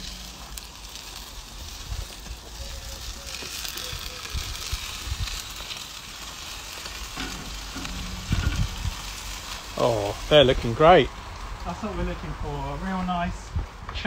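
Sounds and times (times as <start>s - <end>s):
meat sizzling on grill: 0.0s - 13.8s
low thumps: 7.2s - 9.3s.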